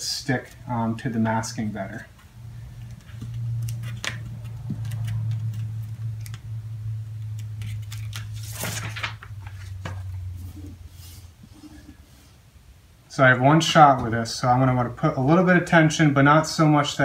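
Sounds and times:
steady low hum: 0.0 - 17.0
decal backing being peeled: 2.6 - 10.8
paper crinkle: 2.9 - 6.4, 7.2 - 10.6.

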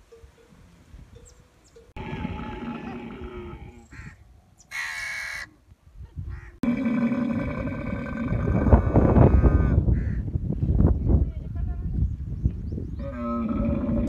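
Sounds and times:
camel bellowing: 2.0 - 3.9, 13.0 - 14.0.

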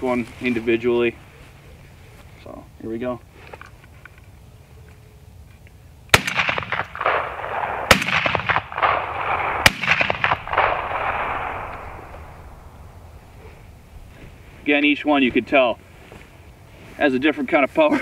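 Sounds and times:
shotgun shots echoing: 6.1 - 13.8.

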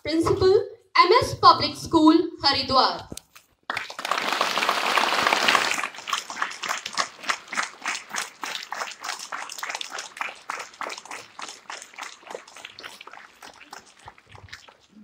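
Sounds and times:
group applause: 3.7 - 14.9.

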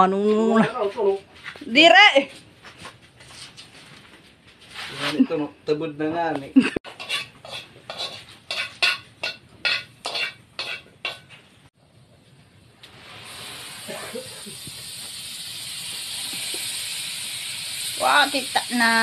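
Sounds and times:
food sizzling in a pan: 6.9 - 11.4, 12.8 - 19.0.

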